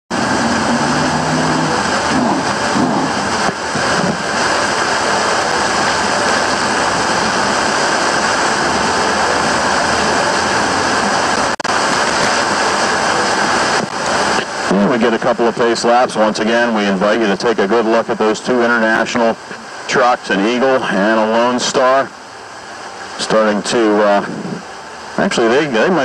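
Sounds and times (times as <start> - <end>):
race car engines rumbling: 0.1 - 26.0.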